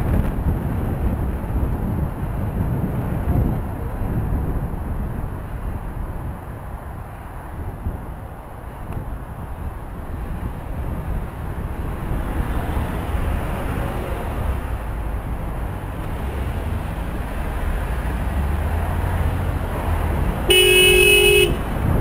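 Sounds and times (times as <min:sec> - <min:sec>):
traffic rumble: 0:00.0 - 0:22.0
wind: 0:00.0 - 0:22.0
car horn blast: 0:20.5 - 0:21.8.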